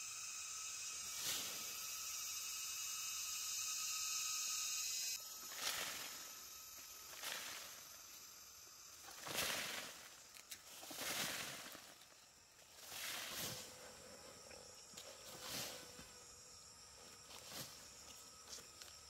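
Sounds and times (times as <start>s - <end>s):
leaves and undergrowth rustling: 5.2s - 19.0s.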